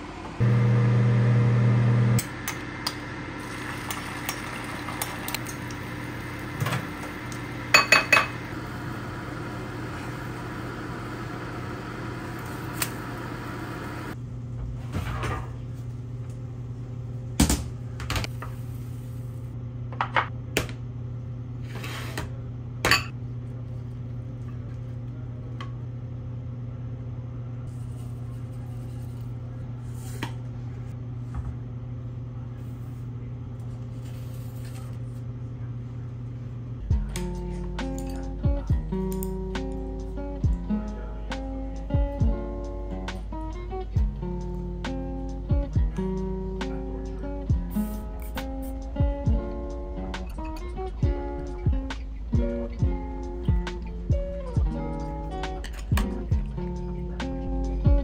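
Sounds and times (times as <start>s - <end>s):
dishes and pan clinking: 7.8s - 8.4s
steady low hum: 22.3s - 58.0s.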